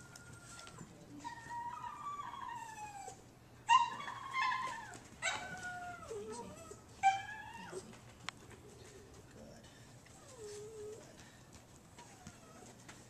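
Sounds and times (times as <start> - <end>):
dog whining and yelping: 0.0 - 8.0, 10.1 - 11.1, 11.9 - 13.0.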